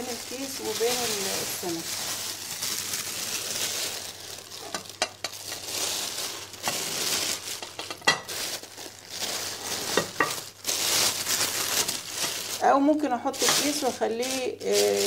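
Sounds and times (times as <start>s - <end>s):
plastic bag rustling: 0.0s - 15.0s.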